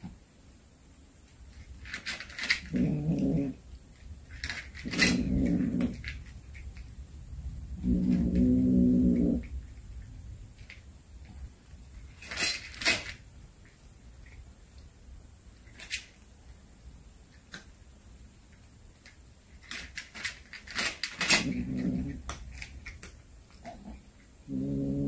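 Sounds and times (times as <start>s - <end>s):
cat growling low: 2.5s - 3.7s, 4.8s - 6.2s, 7.7s - 9.7s, 21.2s - 22.3s, 23.6s - 25.0s.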